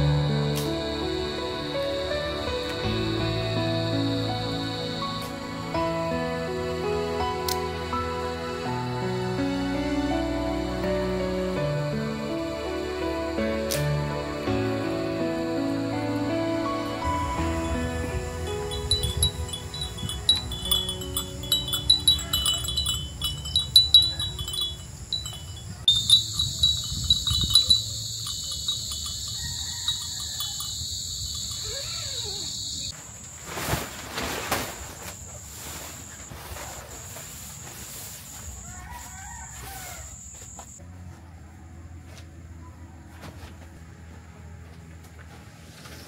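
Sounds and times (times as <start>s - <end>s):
high-pitched insect drone: 0.0s - 7.1s, 11.9s - 33.0s
insect trill: 0.0s - 40.8s
wind chimes tinkling: 17.3s - 32.9s.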